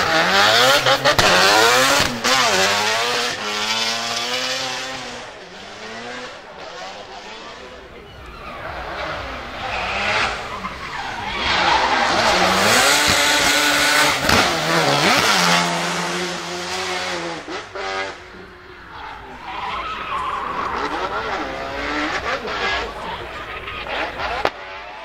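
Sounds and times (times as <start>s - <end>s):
rotary engine revving hard: 0.0s - 25.0s
tyre squeal: 8.1s - 15.3s, 18.9s - 24.4s.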